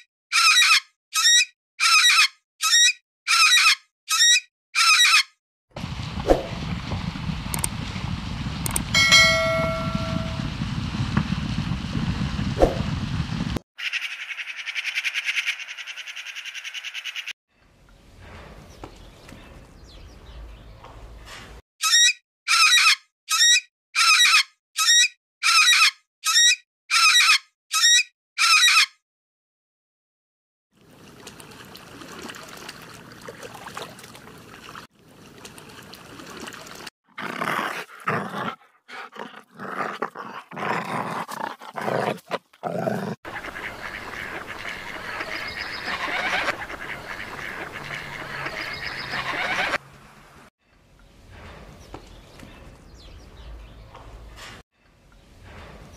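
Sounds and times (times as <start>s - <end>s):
mixed animal and outdoor noise: 0.0s - 7.9s, 13.8s - 28.9s, 34.2s - 55.9s
loud animal calls: 43.3s - 49.8s.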